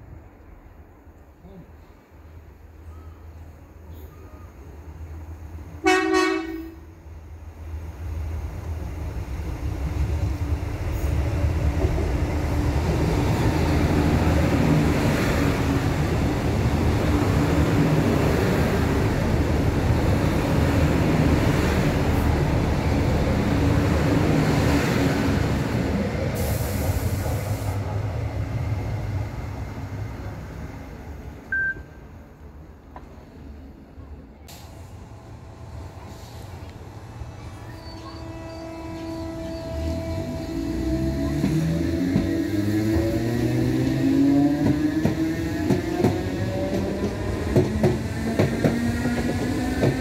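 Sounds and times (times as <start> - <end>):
train wheels rumbling: 8.0 - 31.5, 34.5 - 50.0.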